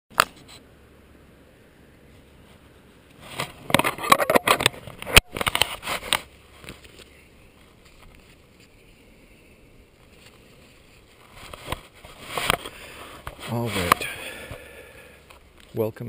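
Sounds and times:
camera handling scrapes and rubs: 2.2s - 8.8s, 10.0s - 14.1s.

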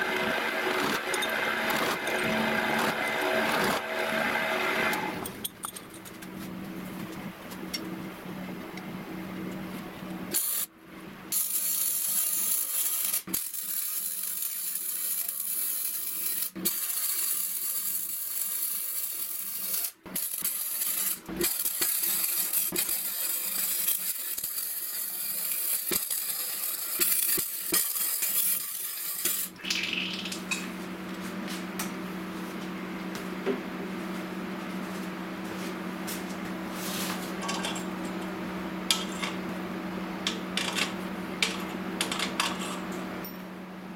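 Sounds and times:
welding arc crackling and sizzling: 0.0s - 5.2s, 10.3s - 10.7s, 11.3s - 30.6s
steady low hum: 0.0s - 11.4s.

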